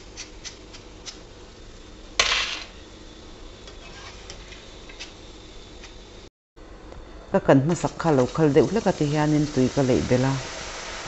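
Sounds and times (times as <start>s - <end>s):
oil frying with crackles: 7.7s - 11.0s.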